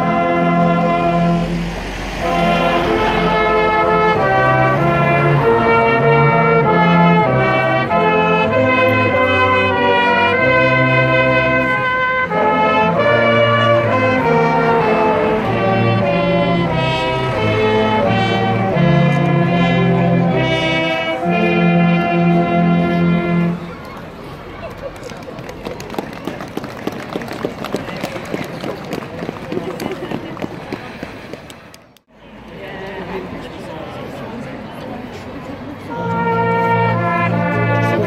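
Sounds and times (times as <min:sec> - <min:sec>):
brass band playing: 0:00.0 - 0:23.8, 0:35.9 - 0:38.0.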